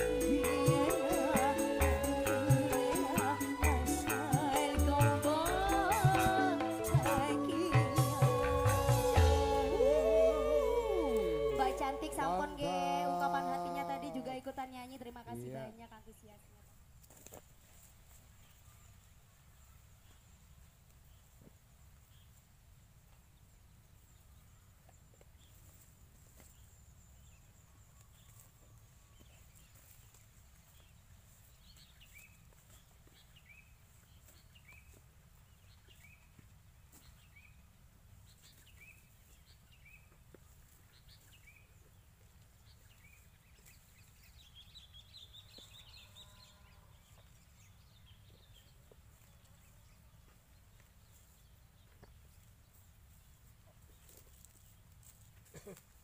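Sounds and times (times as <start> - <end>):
bird chirping descending notes: 0.0 - 14.5.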